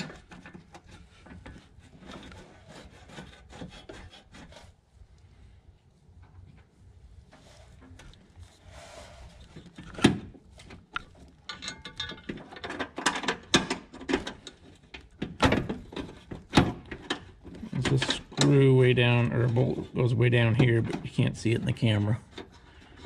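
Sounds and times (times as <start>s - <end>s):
light knocks of metal parts: 9.6s - 18.7s.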